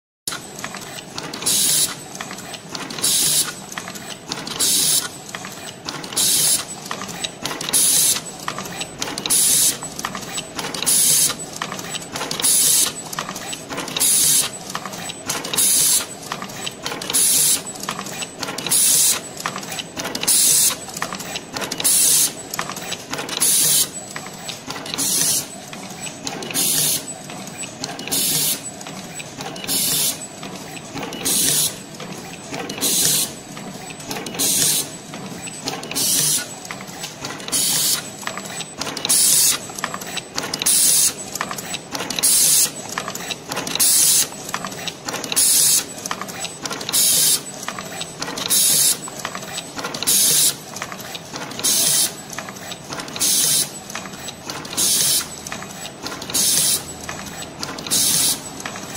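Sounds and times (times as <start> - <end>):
machine mechanical clatter: 0.3 - 58.9.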